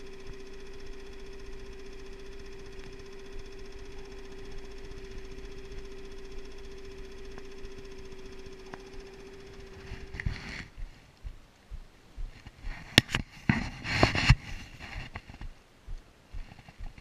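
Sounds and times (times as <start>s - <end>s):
outboard motor running: 0.0s - 13.2s
faint ticks: 0.0s - 13.3s.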